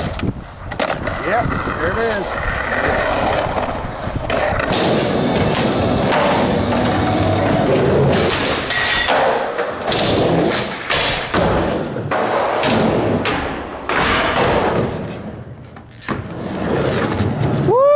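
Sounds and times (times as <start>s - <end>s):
skateboard rolling on concrete: 0.0s - 17.9s
skateboard thuds and knocks: 3.5s - 17.7s.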